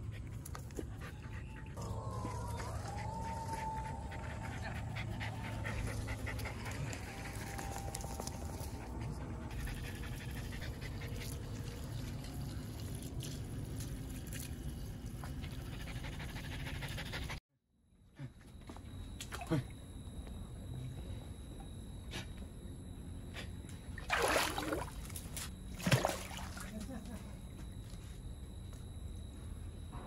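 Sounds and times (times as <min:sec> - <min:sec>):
dog panting hard: 0:04.0 - 0:07.5, 0:08.6 - 0:11.4, 0:15.5 - 0:17.4.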